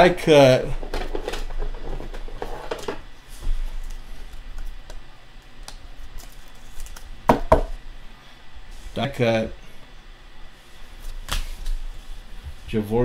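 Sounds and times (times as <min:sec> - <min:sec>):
card clicking and plastic rustling: 0:05.6 - 0:07.1.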